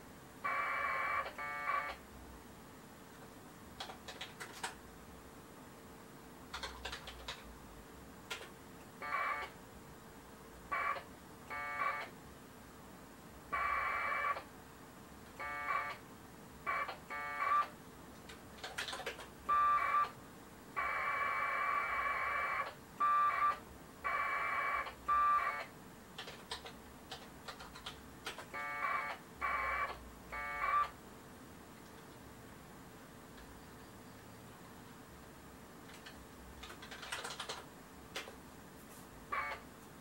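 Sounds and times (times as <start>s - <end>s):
keyboard clicks: 3.8s - 4.8s, 6.5s - 7.4s, 8.3s - 8.5s, 18.2s - 19.3s, 26.2s - 28.5s, 35.9s - 38.4s
warbling two-tone modem bursts: 10.7s - 12.1s, 15.4s - 16.0s, 19.5s - 20.1s, 20.8s - 25.7s, 28.6s - 30.9s.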